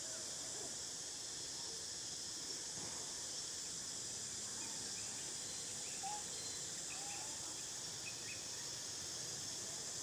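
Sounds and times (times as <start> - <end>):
high insect drone: 0.0 - 10.0.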